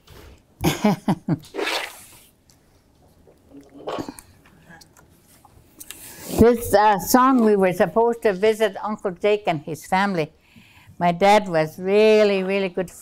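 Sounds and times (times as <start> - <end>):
woman's voice: 6.3 - 10.4, 11.0 - 13.0.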